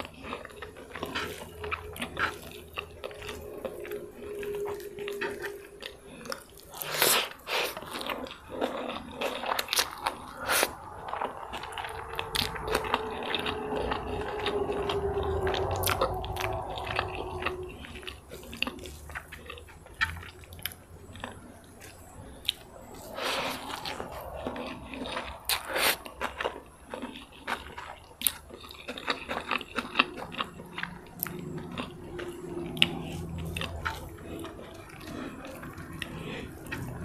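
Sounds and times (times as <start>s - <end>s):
chewing and biting food: 0.0s - 37.0s.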